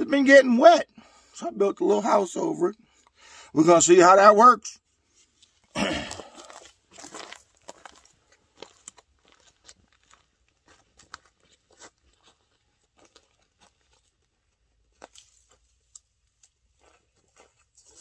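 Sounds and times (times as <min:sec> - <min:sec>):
footsteps crunching in dry leaves: 0:06.0 - 0:14.2, 0:16.4 - 0:18.0.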